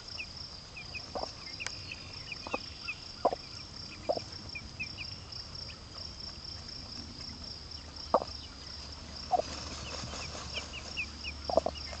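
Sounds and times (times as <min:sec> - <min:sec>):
insects chirring: 0:00.0 - 0:12.0
hen clucking: 0:00.8 - 0:01.6, 0:02.2 - 0:05.0, 0:08.1 - 0:08.3, 0:09.3 - 0:12.0.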